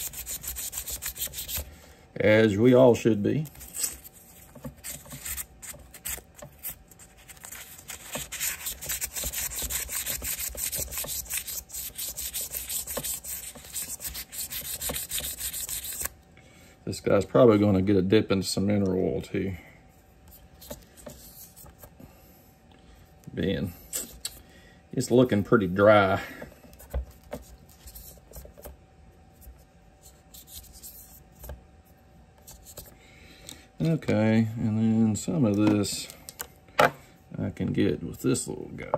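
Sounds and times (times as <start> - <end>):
scrubbing on knife handle: 0.0 - 1.7, 3.6 - 16.1.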